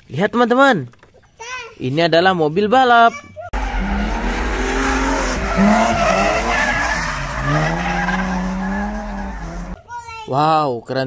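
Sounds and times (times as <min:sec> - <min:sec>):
race car engines revving: 0:03.6 - 0:09.8
tyres screeching: 0:03.6 - 0:09.8.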